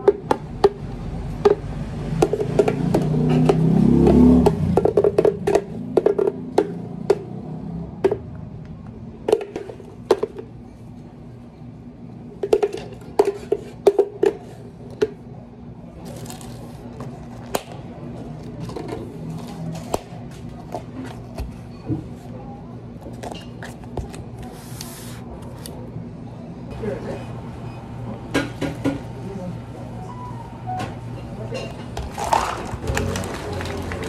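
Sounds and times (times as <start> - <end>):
plastic cups clicking on counter: 2.2 - 7.2.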